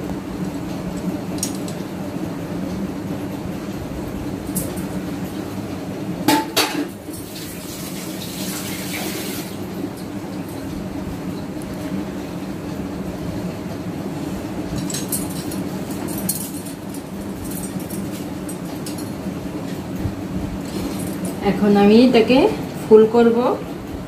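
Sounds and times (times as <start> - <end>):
steady low hum: 0.0 - 7.3, 9.5 - 24.0.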